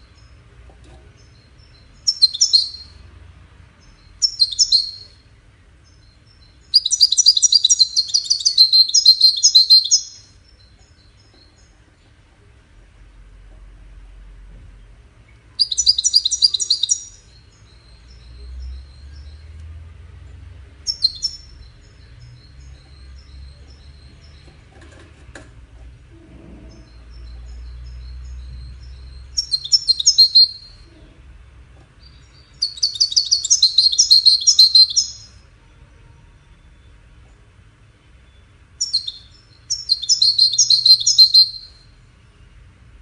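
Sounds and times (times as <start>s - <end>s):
goldfinch twittering trills: 1.3s - 2.9s, 6.0s - 10.2s, 15.6s - 17.3s, 26.8s - 30.7s, 32.1s - 35.3s, 38.8s - 41.7s
quick repeated bird notes: 6.0s - 10.4s, 28.8s - 30.8s, 32.4s - 35.4s, 38.8s - 41.8s.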